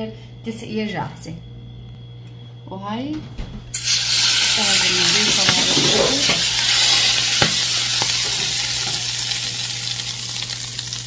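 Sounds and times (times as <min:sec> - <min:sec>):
hot oil sizzling and crackling: 0:03.7 - 0:11.0.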